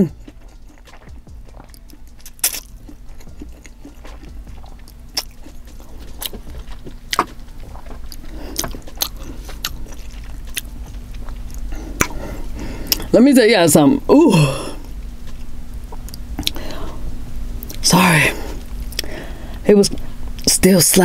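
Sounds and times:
wet chewing: 0.0 - 13.1, 14.8 - 17.0, 18.5 - 19.2
mouth clicks and smacks: 0.1 - 12.2, 15.3 - 16.6.

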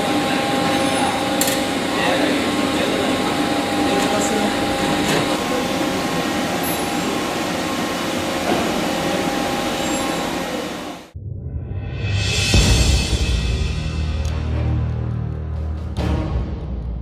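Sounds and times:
lathe machine hum: 0.0 - 11.2.

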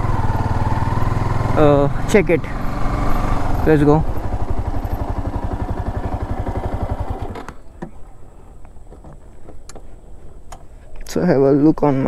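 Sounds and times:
motorcycle engine: 0.0 - 8.1
wind and road noise: 0.0 - 12.0.

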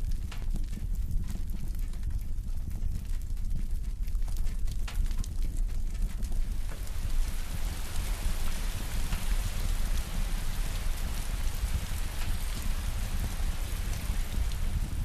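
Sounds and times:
steady hiss with crackles: 0.0 - 15.0
low rumble: 5.9 - 15.0.

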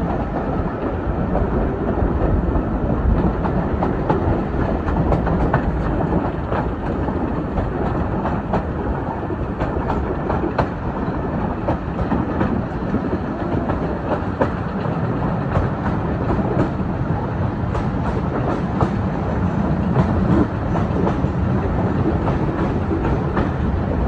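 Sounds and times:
train wheels rumbling: 0.0 - 24.0
wheels clicking over rail joints: 1.3 - 17.0.

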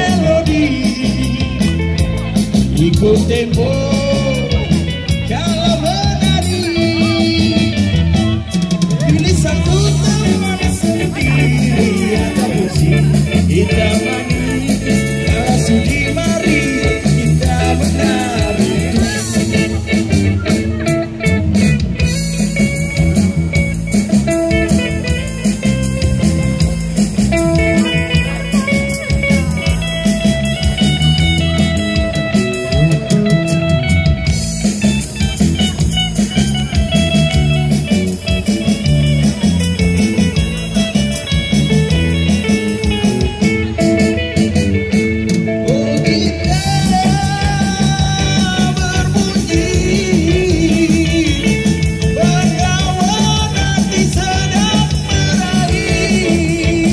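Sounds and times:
person singing: 0.0 - 23.1, 45.3 - 56.9
electric guitar: 0.0 - 56.9
live band music: 0.0 - 56.9.

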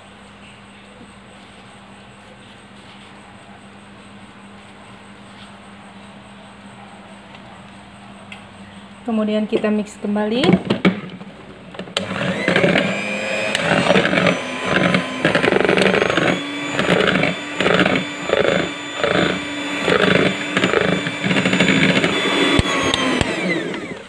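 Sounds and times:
electric hand mixer running: 11.9 - 24.0.

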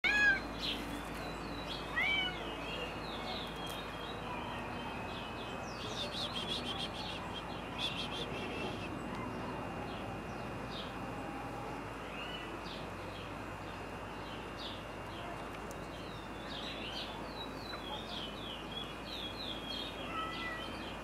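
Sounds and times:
cat meowing: 0.0 - 0.4, 1.9 - 2.4, 20.0 - 20.7
small birds chirping: 0.1 - 21.0.

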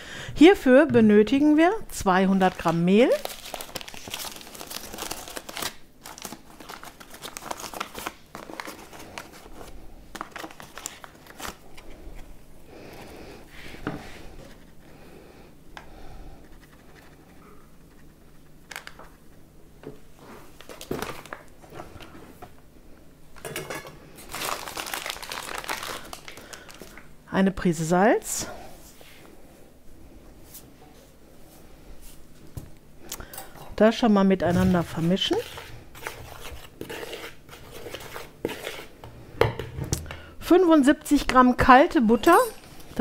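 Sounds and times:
paper bag crinkling: 2.4 - 11.7, 24.2 - 27.0.

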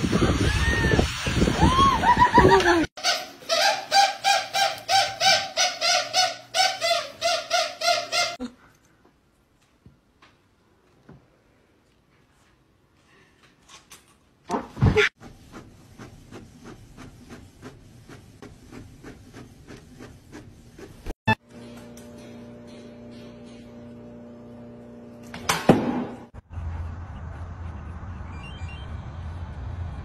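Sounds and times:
squeaky toy squeaking: 3.0 - 8.4.

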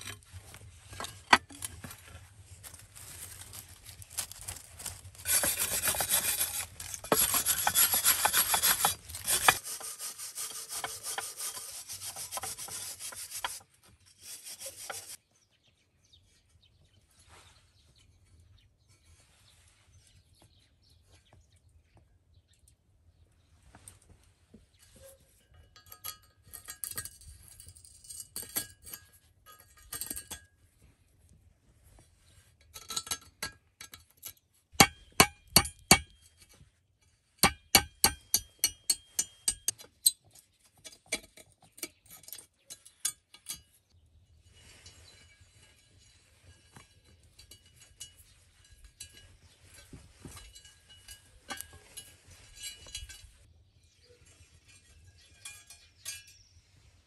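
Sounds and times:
scratching and rustling of metal: 0.0 - 15.2, 23.5 - 57.0
hammer striking metal frame: 34.8 - 36.2, 37.4 - 39.8.

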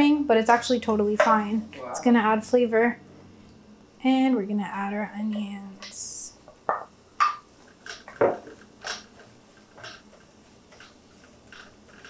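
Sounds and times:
wooden spoon scraping a pan: 7.5 - 12.0.

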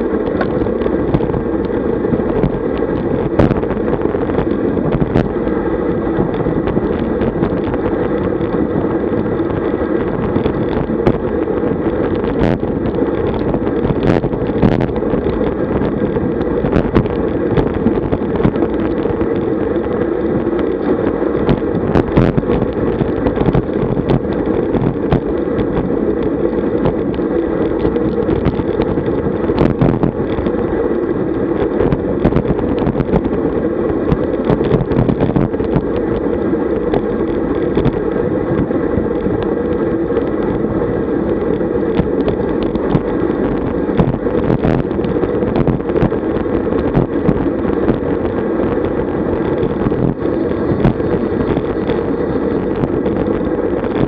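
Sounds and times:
tyre noise on tarmac: 0.0 - 54.0
wind rushing over microphone: 0.0 - 54.0.

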